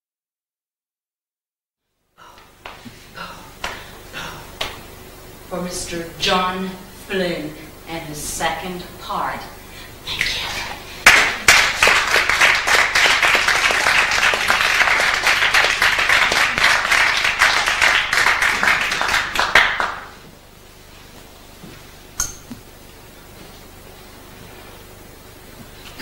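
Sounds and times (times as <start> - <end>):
audience applauding: 11.0 - 20.2.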